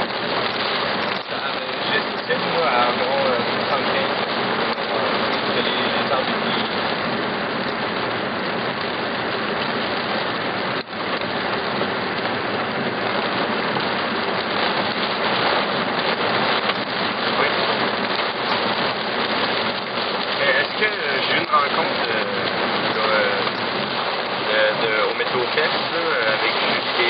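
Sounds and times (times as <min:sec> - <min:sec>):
heavy rain pelting down: 0:00.0 - 0:27.0.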